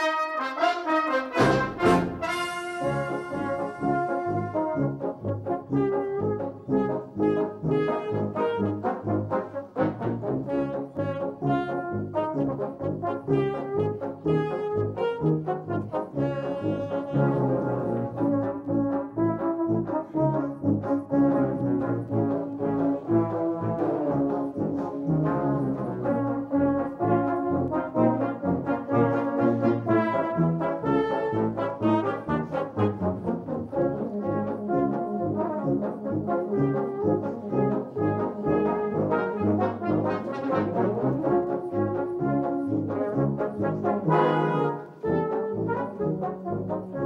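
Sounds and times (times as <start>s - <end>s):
brass band playing: 0.0s - 47.0s.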